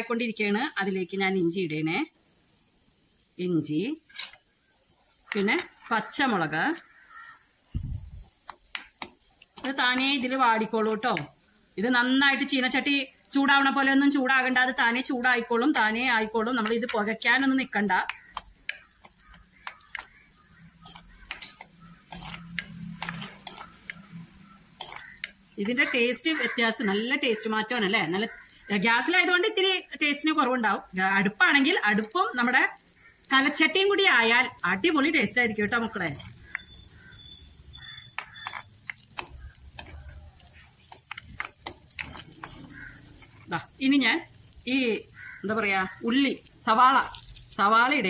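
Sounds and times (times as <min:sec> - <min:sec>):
faint sizzle: 0:00.0 - 0:48.0
spoon scraping clay pot: 0:04.0 - 0:04.4, 0:18.0 - 0:26.5, 0:35.8 - 0:43.7.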